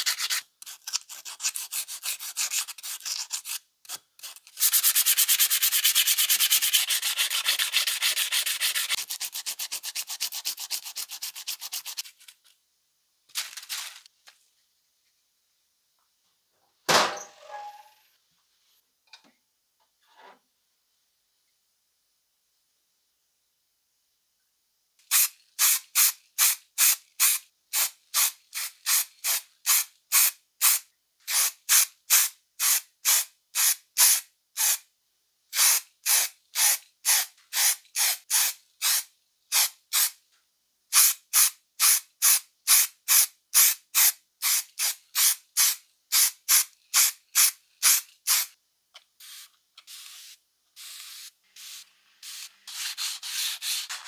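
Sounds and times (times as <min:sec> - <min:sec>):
wet sandpaper rubbing: 0:00.0 - 0:12.3, 0:52.3 - 0:54.0
aerosol spray can bursts: 0:25.0 - 0:34.8, 0:35.6 - 0:40.2, 0:41.0 - 0:48.6, 0:49.2 - 0:54.0.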